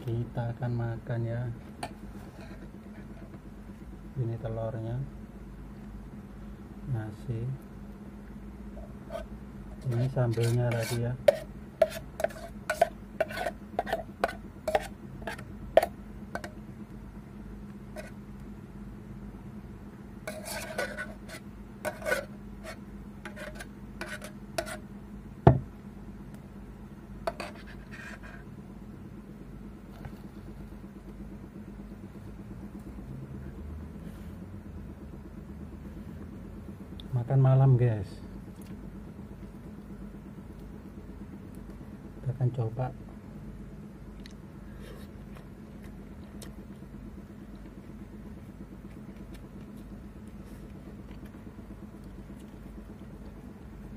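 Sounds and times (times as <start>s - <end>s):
spoon scraping metal pot: 9.0s - 16.5s, 20.3s - 24.8s, 27.3s - 28.4s.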